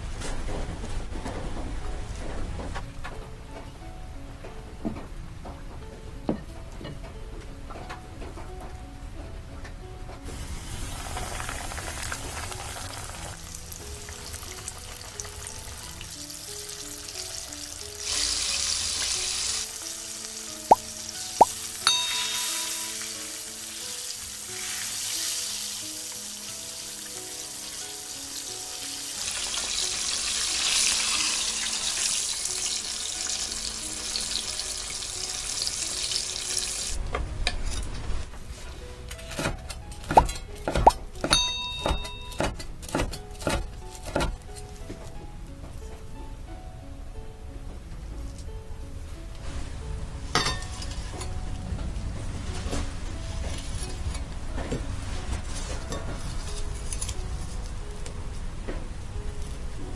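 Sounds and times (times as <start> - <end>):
soft background music: 0.0 - 59.9
chicken deep-frying in oil: 10.3 - 37.0.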